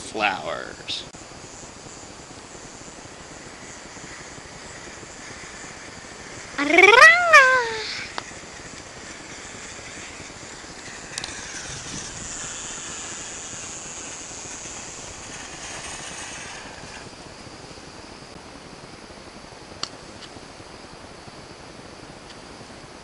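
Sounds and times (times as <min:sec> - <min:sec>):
firework fountain hissing: 0:00.0 - 0:23.0
sharp cracks: 0:07.7 - 0:17.1.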